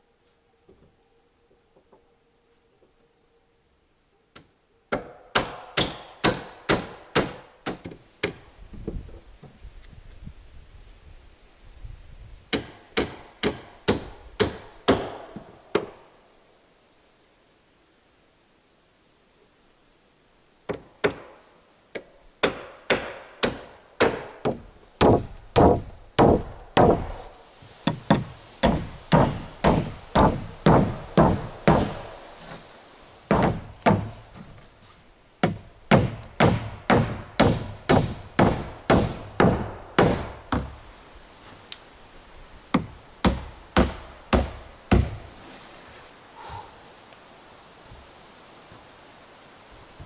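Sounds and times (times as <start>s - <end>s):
hammer driving nails into wood: 12.5s - 16.0s, 27.9s - 32.0s, 35.4s - 40.7s.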